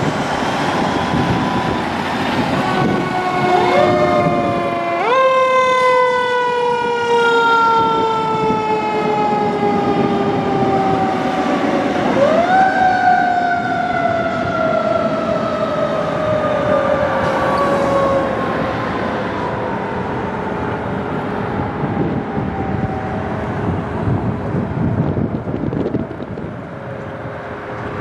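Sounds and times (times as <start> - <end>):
trucks driving past rumble: 0.0 - 7.1
fire truck siren: 0.0 - 28.0.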